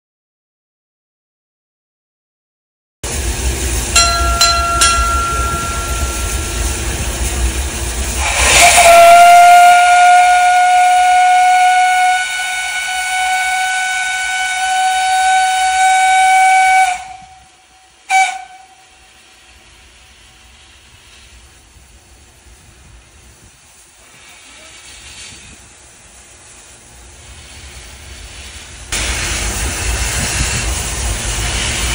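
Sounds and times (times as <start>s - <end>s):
loud blast of steam: 3.0s - 31.9s
steam locomotive hissing steam: 3.0s - 31.9s
steam whistle: 8.1s - 19.4s.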